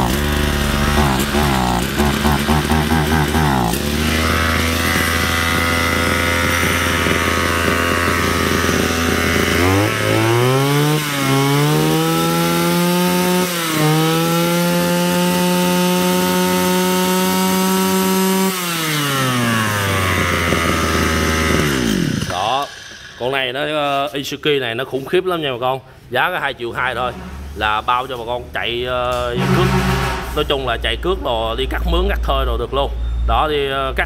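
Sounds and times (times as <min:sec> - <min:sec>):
brush cutter engine revving: 0:00.0 - 0:23.2.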